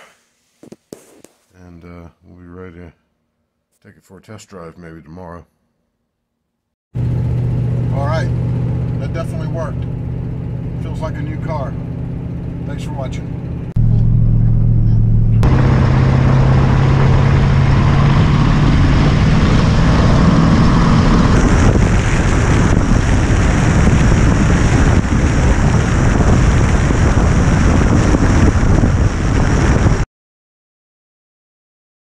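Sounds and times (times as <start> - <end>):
car engine droning: 7.0 - 29.9
wind buffeting microphone: 13.8 - 30.0.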